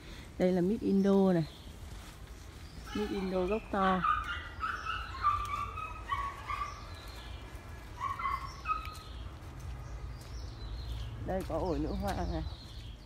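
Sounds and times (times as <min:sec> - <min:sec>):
animal high-pitched calls: 0:02.8 - 0:07.0.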